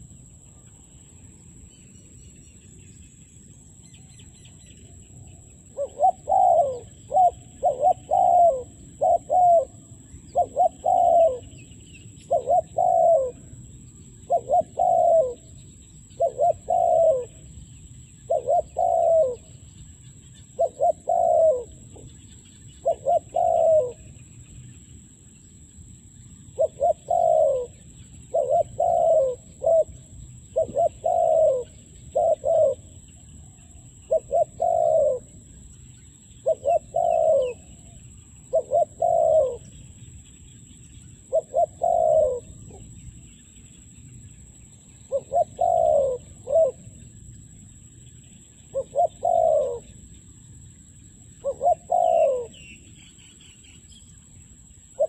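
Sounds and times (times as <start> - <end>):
small birds chirping: 0.0 - 55.0
dove cooing: 5.7 - 13.6, 14.2 - 17.5, 18.3 - 19.6, 20.6 - 22.1, 22.8 - 24.1, 26.6 - 33.0, 33.7 - 35.4, 36.4 - 39.8, 41.2 - 42.9, 45.1 - 47.0, 48.7 - 50.0, 51.4 - 52.8.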